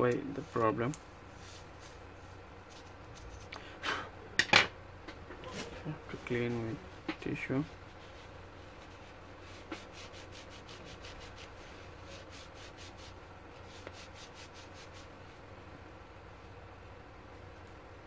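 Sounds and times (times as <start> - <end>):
tissue wiping fan blades: 0.0 - 3.8, 5.3 - 15.7.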